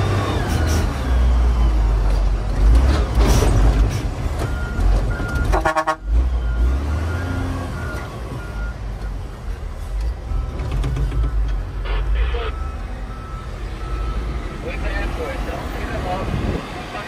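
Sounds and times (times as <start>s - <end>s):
reversing alarm beeping: 4.4s - 9.2s, 10.3s - 14.9s
horn toot: 5.5s - 6.2s.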